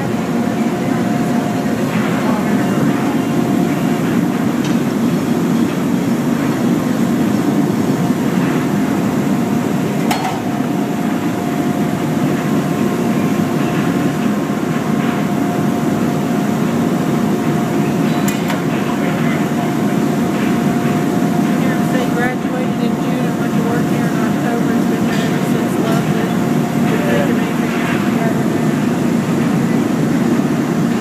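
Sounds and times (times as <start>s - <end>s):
low roar of factory machinery: 0.0s - 31.0s
thin steady whine: 0.0s - 31.0s.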